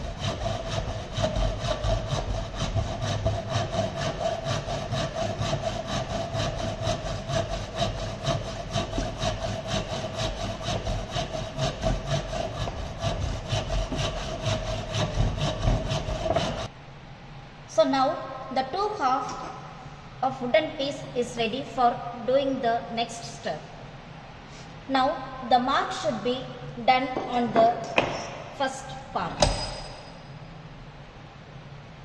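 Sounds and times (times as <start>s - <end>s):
hand saw cutting wood: 0.0s - 16.7s.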